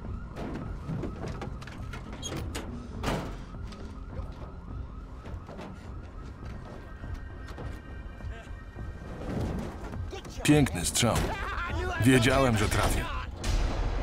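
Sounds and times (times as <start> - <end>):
siren wailing: 0.0 - 13.4
loud bang: 13.4 - 14.0.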